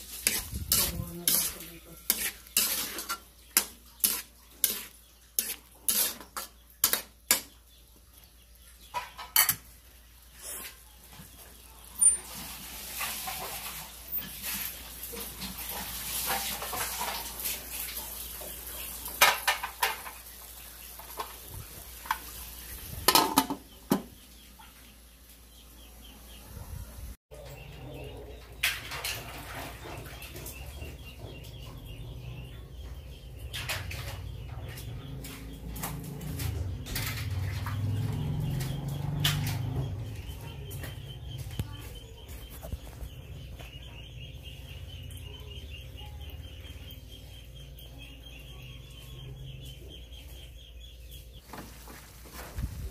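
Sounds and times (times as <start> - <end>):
metal pot and utensil clatter: 0.0 - 7.6, 8.8 - 9.8, 15.2 - 17.5, 19.1 - 20.3, 23.1 - 24.0, 28.4 - 30.6.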